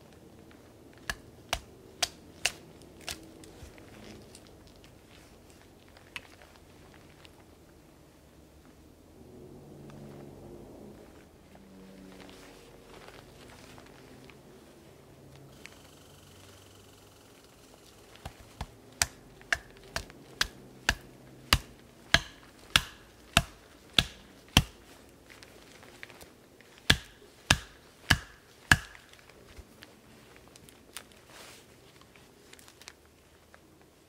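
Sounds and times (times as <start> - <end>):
baton knocking on knife spine: 18.2 - 24.8, 26.9 - 29.0.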